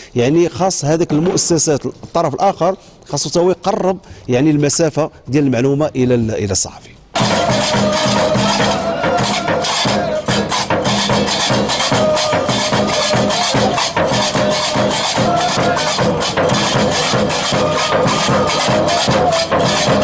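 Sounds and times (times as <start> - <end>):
clattering percussion beat: 7.2 - 20.0.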